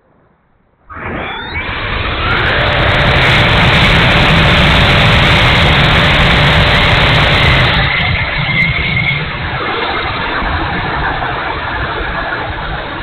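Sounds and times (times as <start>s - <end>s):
faint steady whine: 0.0s - 13.0s
electric ducted fan rushing: 0.9s - 13.0s.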